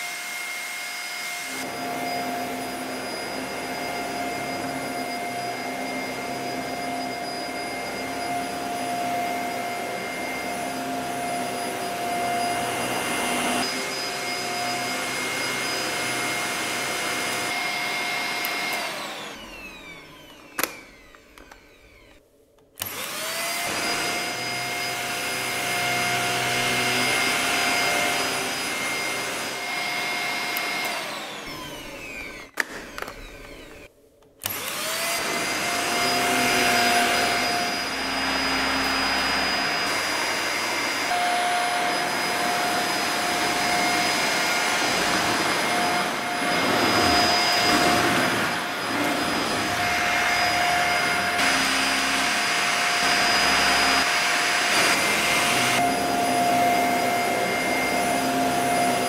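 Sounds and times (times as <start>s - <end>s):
vacuum cleaner running: 0.0s - 22.2s, 22.8s - 59.0s
vacuum motor winding down: 0.1s - 22.2s, 22.8s - 59.0s.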